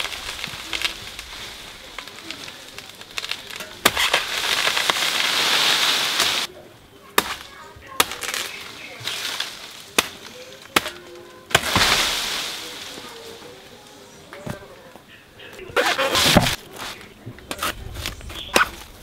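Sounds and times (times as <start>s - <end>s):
dry fronds rustling and crashing: 0.0s - 19.0s
machete chopping wood: 3.2s - 5.2s, 7.2s - 9.2s, 10.0s - 12.3s, 15.8s - 16.6s, 17.5s - 18.8s.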